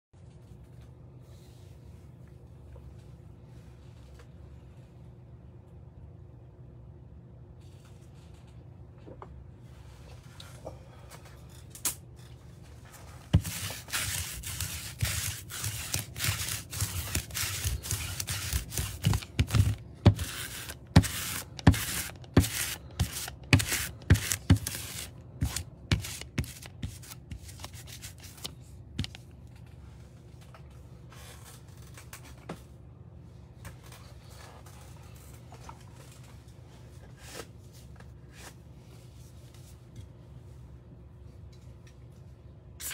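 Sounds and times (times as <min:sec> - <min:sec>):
lint roller rasping on cloth: 0:13.3 - 0:28.4.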